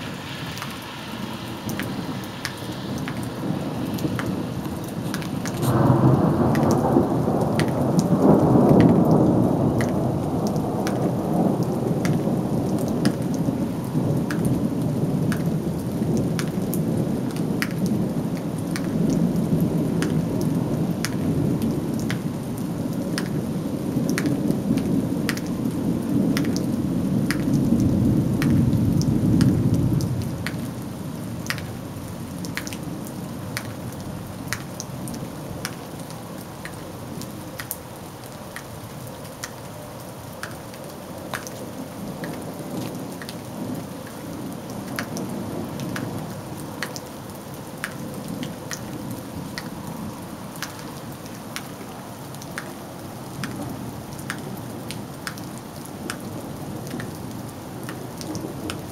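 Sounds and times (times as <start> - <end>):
thunder rumbling: 0.0 - 34.1
raindrops ticking close by: 0.0 - 58.9
steady rain: 0.0 - 58.9.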